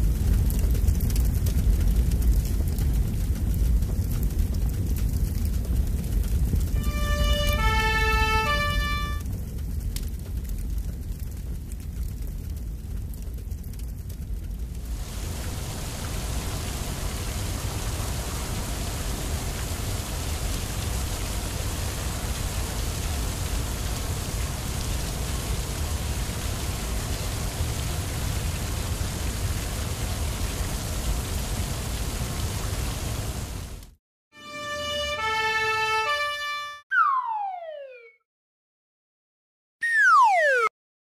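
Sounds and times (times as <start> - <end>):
fire hose spraying water: 0.0 - 9.2, 14.8 - 34.0.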